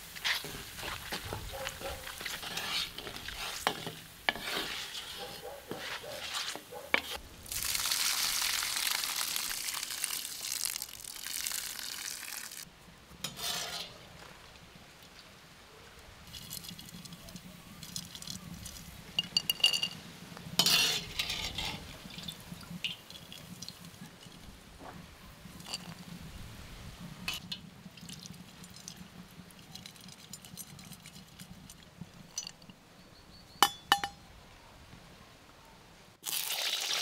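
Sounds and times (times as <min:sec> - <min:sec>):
loud hiss of sizzling: 0:02.1 - 0:12.7
utensils clinking on dishes: 0:33.6 - 0:34.2.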